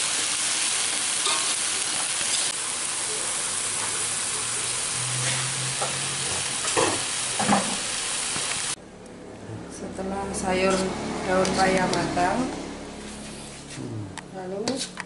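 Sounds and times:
leaves sizzling in a wok: 0:00.0 - 0:08.8.

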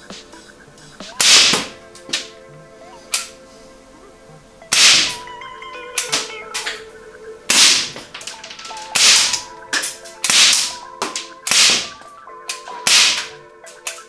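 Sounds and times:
airsoft revolver shots: 0:01.2 - 0:02.3, 0:04.7 - 0:05.2, 0:07.5 - 0:08.0, 0:08.7 - 0:14.0.

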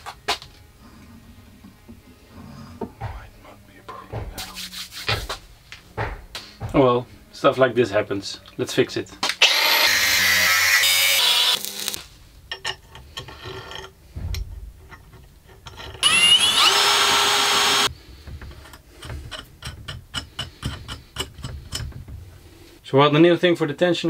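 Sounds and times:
power tool motor whining: 0:09.4 - 0:12.0, 0:16.0 - 0:17.9
metal parts clicking and knocking: 0:12.4 - 0:17.4, 0:18.2 - 0:22.3.

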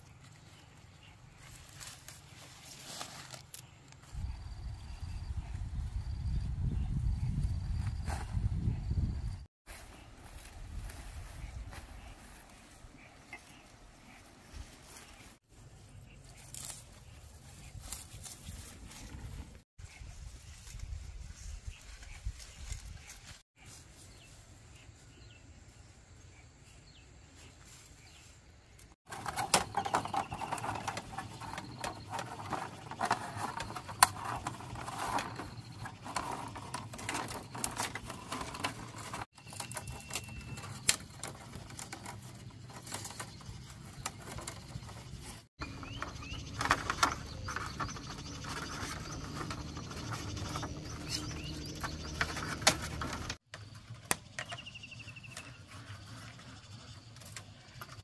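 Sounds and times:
bamboo strips clicking and scraping: 0:01.4 - 0:04.1, 0:16.2 - 0:19.2, 0:28.8 - 0:58.0.

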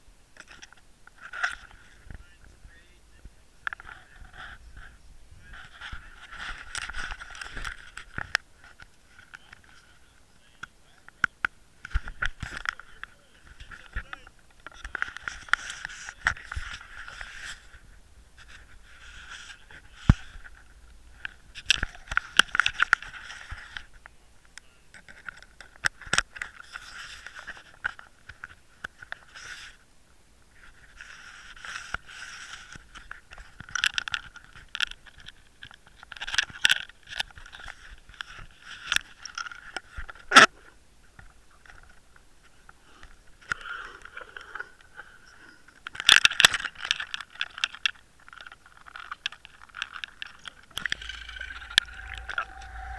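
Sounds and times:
handling rubbing and scraping: 0:13.6 - 0:24.0, 0:50.0 - 0:52.9.

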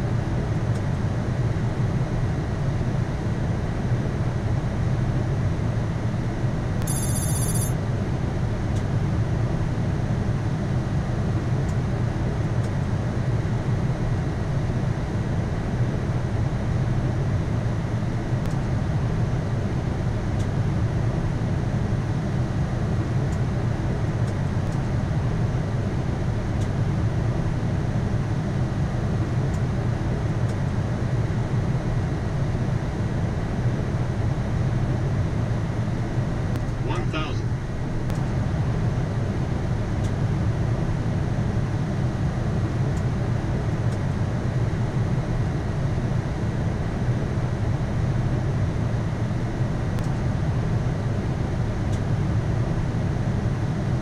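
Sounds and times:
cockpit airflow and engine hum: 0:00.0 - 0:54.0
high ringing chime: 0:06.8 - 0:07.8.

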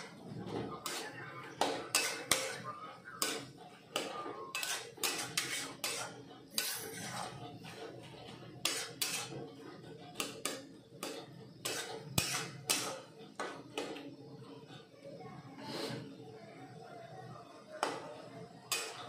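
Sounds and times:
metal spatula scraping a pot: 0:00.0 - 0:13.2, 0:18.7 - 0:19.0.

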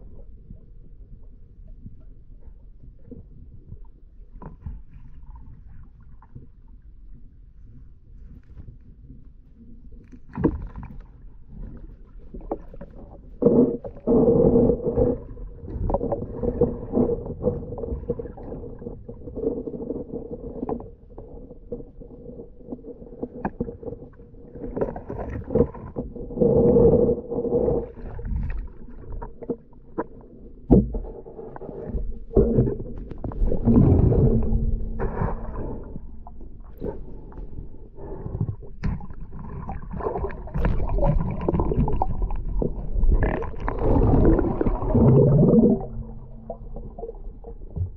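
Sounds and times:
underwater water churning: 0:10.3 - 0:47.9.

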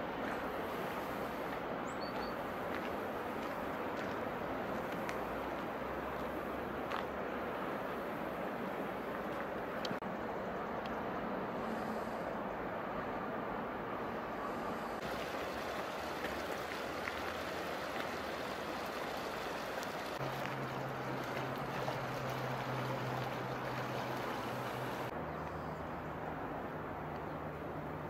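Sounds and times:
river water rushing: 0:12.3 - 0:25.1.

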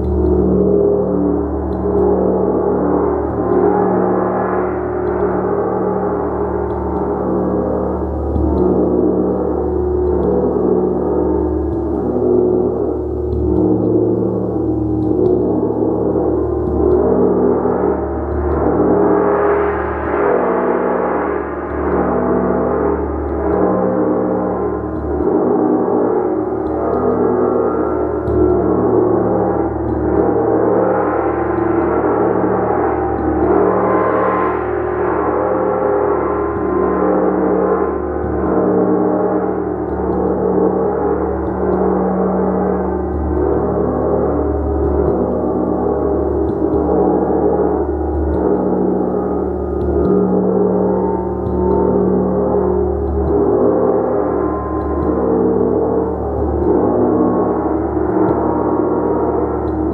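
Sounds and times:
gong ringing: 0:14.7 - 0:59.9.

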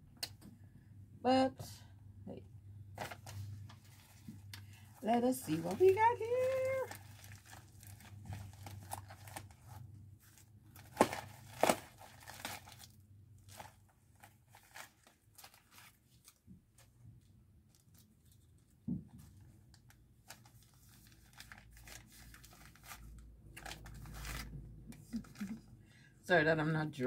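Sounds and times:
packaging crinkling and tearing: 0:05.4 - 0:16.9, 0:19.7 - 0:25.6.

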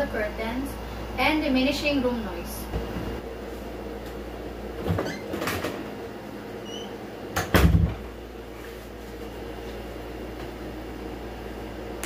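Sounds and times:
door shutting thud: 0:07.4 - 0:08.0.

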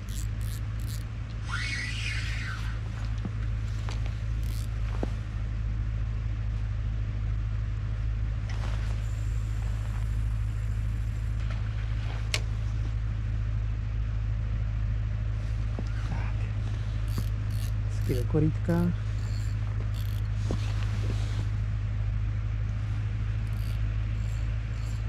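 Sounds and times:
fishing reel whirring: 0:00.0 - 0:02.8, 0:04.3 - 0:04.8, 0:09.0 - 0:11.4, 0:17.0 - 0:20.4, 0:23.4 - 0:25.0.

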